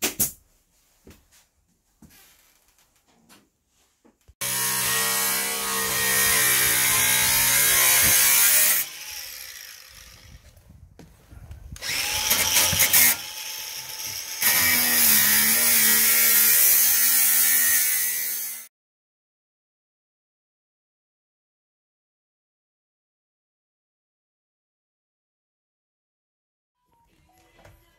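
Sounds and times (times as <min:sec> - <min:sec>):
angle grinder sanding wood: 0:04.4 - 0:10.5, 0:11.8 - 0:18.7.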